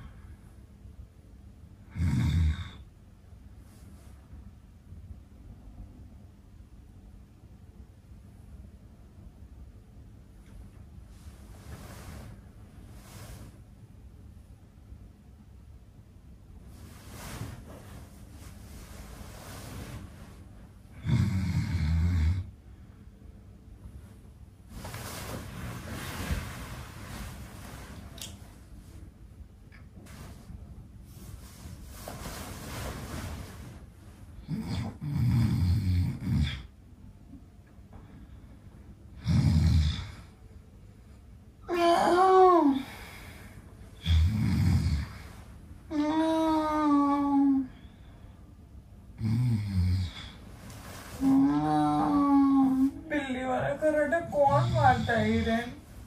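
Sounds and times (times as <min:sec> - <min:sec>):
low hum and rumble: 0:00.0 - 0:49.4, 0:50.0 - 0:56.0
man fake snoring: 0:01.9 - 0:02.8, 0:21.0 - 0:22.5, 0:34.4 - 0:36.7, 0:39.2 - 0:40.3, 0:44.0 - 0:45.2, 0:49.2 - 0:50.4.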